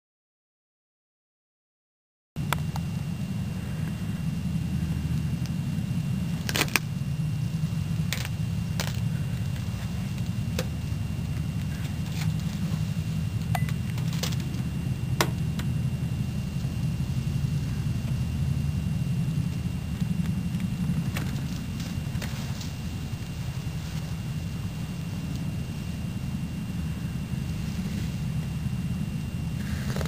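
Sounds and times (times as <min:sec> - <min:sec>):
camera handling rumble: 0:06.3 - 0:06.9, 0:08.0 - 0:12.8, 0:29.6 - 0:30.0.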